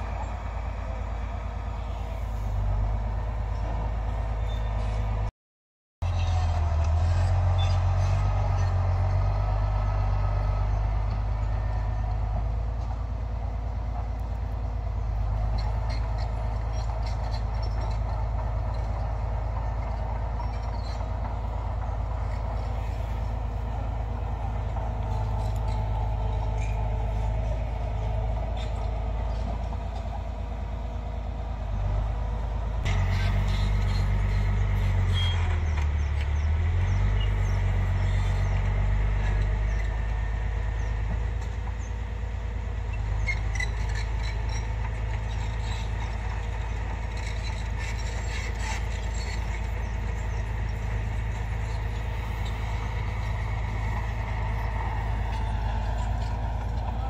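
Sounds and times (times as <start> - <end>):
bulldozer diesel engine: 0.0 - 5.3, 6.0 - 57.0.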